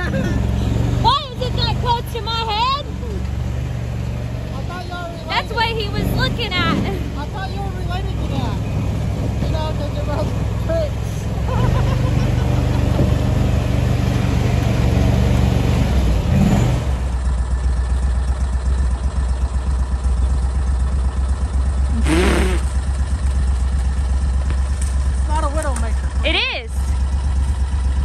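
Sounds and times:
small vehicle engine running: 0:00.0 - 0:28.0.

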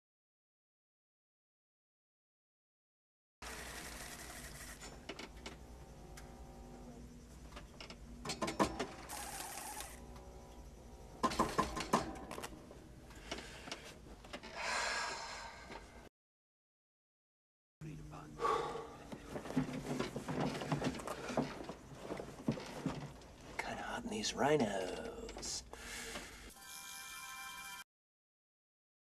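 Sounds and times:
low machinery hum: 0:03.4 - 0:16.0, 0:17.8 - 0:26.4
machinery clicks and clanks: 0:07.4 - 0:10.6, 0:11.2 - 0:14.5.

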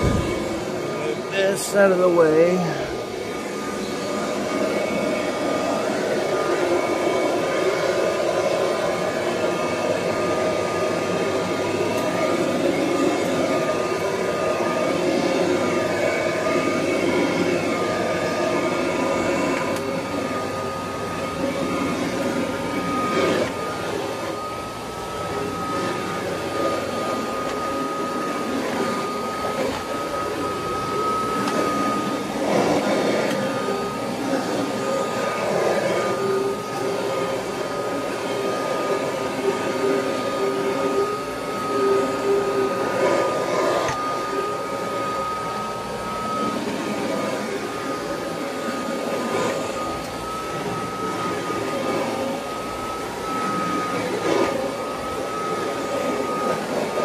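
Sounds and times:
vacuum cleaner running: 0:00.0 - 0:57.0.

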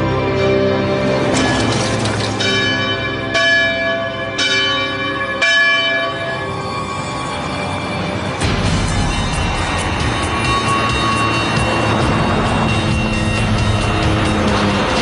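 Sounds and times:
church bell tolling: 0:01.3 - 0:06.6.

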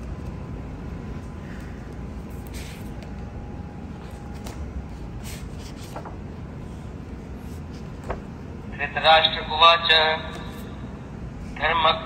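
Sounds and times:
book pages rustling: 0:04.0 - 0:06.8.

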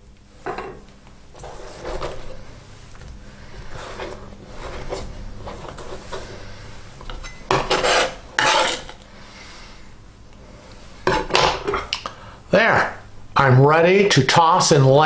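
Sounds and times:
soft handling sounds: 0:00.1 - 0:07.4
knife scraping plastic cutting board: 0:01.4 - 0:02.4, 0:03.5 - 0:06.4, 0:07.1 - 0:09.0.

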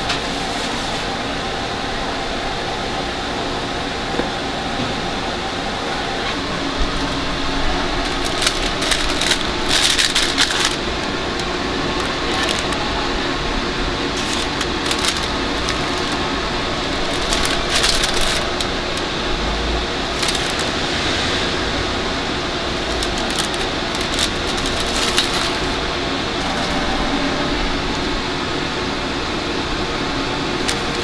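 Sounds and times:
steady background hum: 0:00.0 - 0:31.0
small hard objects clinking: 0:07.9 - 0:12.8, 0:14.1 - 0:19.1, 0:20.0 - 0:20.8, 0:22.8 - 0:25.8.

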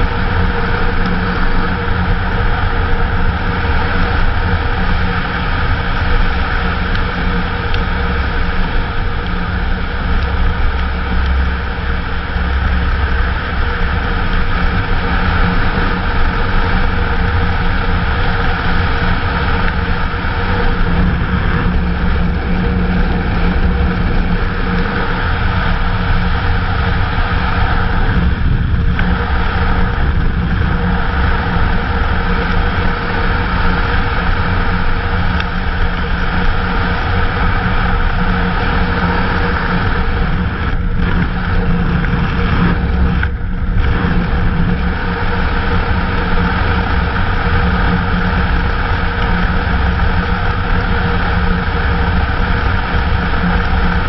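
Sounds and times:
motorcycle engine running: 0:00.0 - 0:54.0
rush of wind noise: 0:00.0 - 0:54.0.

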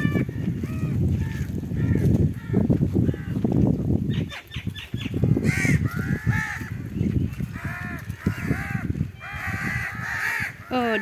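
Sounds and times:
crows cawing: 0:05.3 - 0:06.8, 0:07.5 - 0:11.0.

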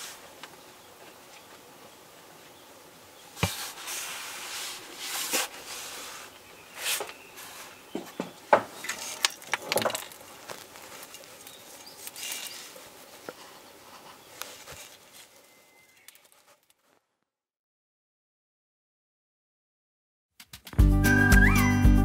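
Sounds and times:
clicks and rustling: 0:08.0 - 0:15.3.

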